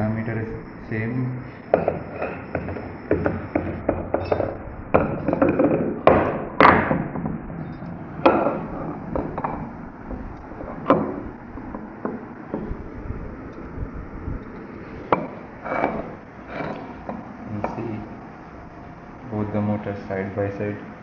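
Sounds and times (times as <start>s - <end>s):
metal housings knocking and scraping: 1.7s - 18.2s.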